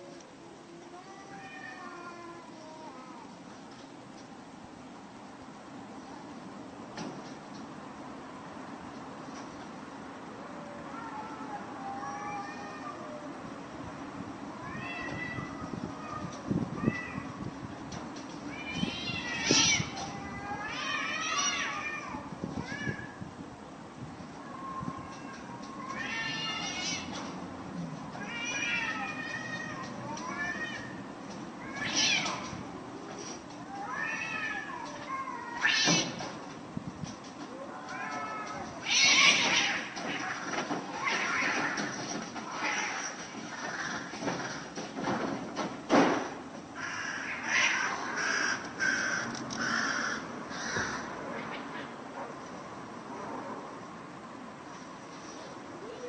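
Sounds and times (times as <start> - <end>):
cat screeching: 18.5 - 23.2, 24.4 - 27.4, 28.2 - 32.7, 33.6 - 36.3, 37.6 - 44.6, 46.8 - 51.7
cat yowling: 18.6 - 23.2, 24.4 - 27.2, 28.2 - 32.6, 33.6 - 36.2, 37.5 - 41.8, 46.8 - 48.6
crow cawing: 48.2 - 51.1.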